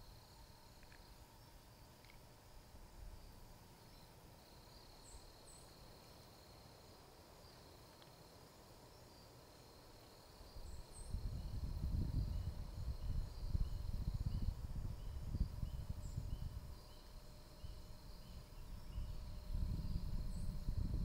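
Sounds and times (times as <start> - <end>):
faint high hum: 0.0 - 21.0
wind rumble on microphone: 10.5 - 21.0.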